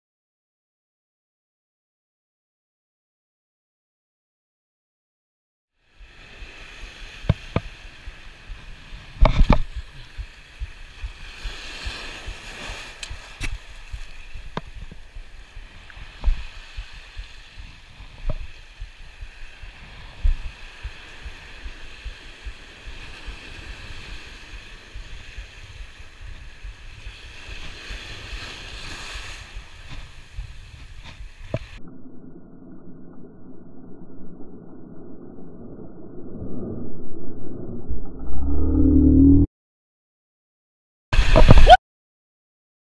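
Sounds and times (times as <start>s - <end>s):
surf on rocky shore: 5.9s - 31.8s, 41.2s - 41.8s.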